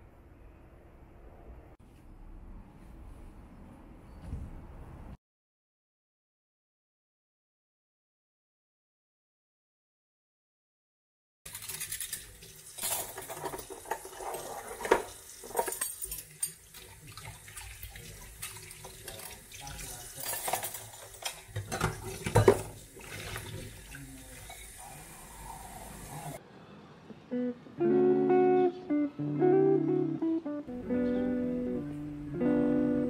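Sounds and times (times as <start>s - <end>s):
cutlery clinking: 11.5s - 22.8s
tap water running into sink: 12.1s - 26.4s
acoustic guitar music: 27.3s - 33.0s.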